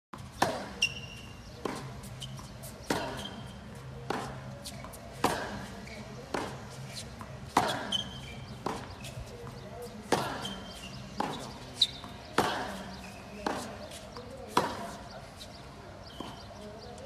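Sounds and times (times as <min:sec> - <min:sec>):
tennis ball hitting racket: 0:00.2 - 0:17.0
ball bouncing on court: 0:00.4 - 0:03.4, 0:07.2 - 0:15.0
shoe squeaks: 0:00.4 - 0:16.9.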